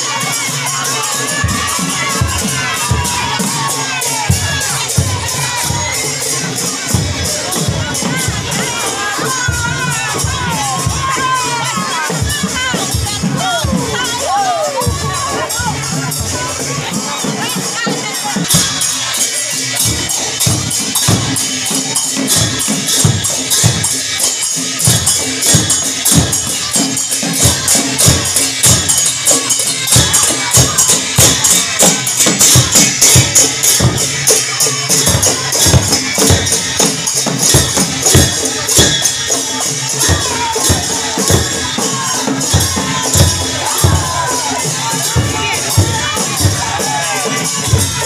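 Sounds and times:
metallic jingling percussion: 0.0 - 48.0
hand drum beating: 35.0 - 48.0.

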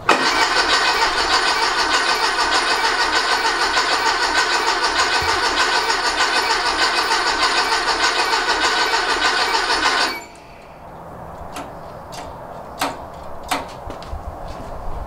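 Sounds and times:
engine cranking on starter: 0.0 - 10.9
sharp clicks: 0.0 - 13.8.

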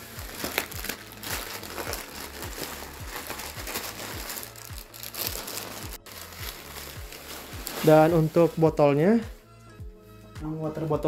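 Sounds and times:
contents shifting inside bag: 0.0 - 8.5
backpack rustling and crinkling: 0.0 - 8.8
background music with low beat: 0.0 - 11.0.

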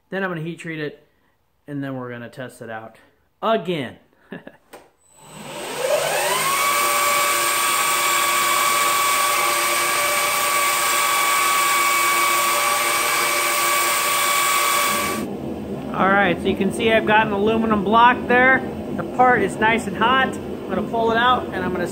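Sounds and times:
belt grinder whining: 5.1 - 15.3.

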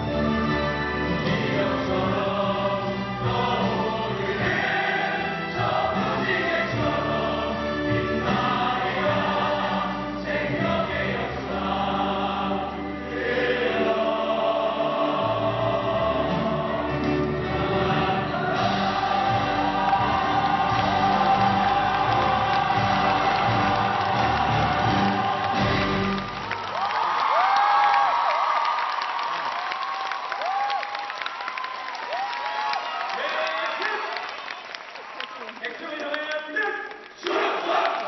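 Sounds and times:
group singing with instruments: 0.0 - 26.5.

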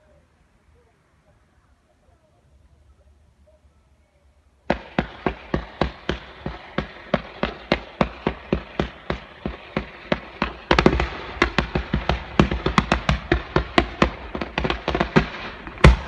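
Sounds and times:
fireworks launch shots: 4.6 - 16.0.

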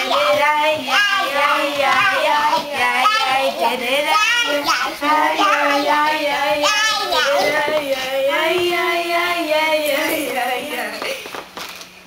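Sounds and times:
children singing: 0.0 - 10.6.

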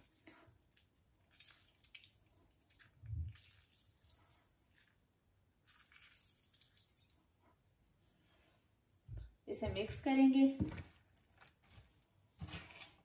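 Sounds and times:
juice dripping into liquid: 0.0 - 7.4.

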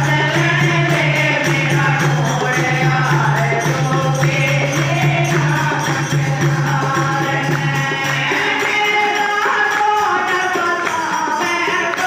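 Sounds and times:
jingling tambourine percussion: 0.0 - 12.0
person singing into a microphone: 0.0 - 12.0
women singing: 0.0 - 12.0.

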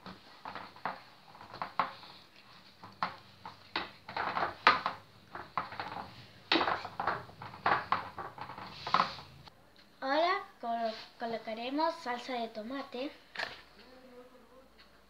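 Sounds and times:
dough pressed by hand: 0.0 - 9.5
metal pans knocking on table: 2.8 - 9.4.

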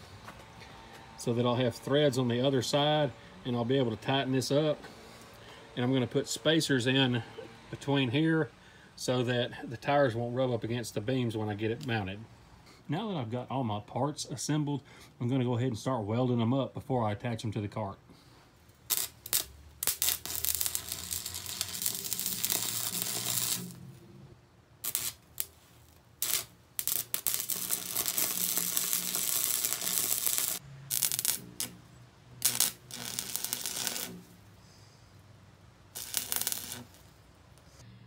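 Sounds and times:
arc welder crackling: 18.7 - 24.2, 24.8 - 34.6, 35.9 - 37.8.

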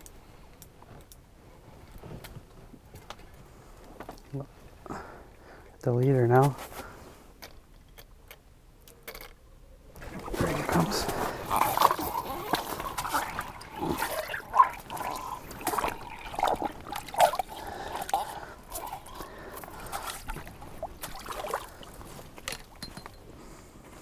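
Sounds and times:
water splashing and trickling: 10.0 - 22.8.

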